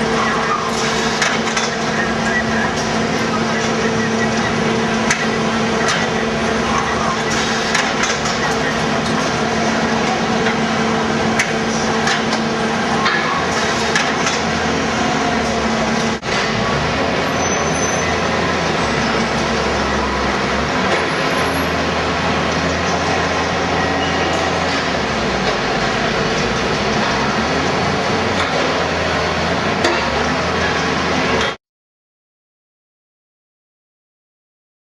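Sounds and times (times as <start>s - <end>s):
machinery hum and rumble: 0.0s - 31.6s
sharp mechanical knocks: 4.4s - 6.3s, 7.2s - 9.4s, 11.3s - 14.6s.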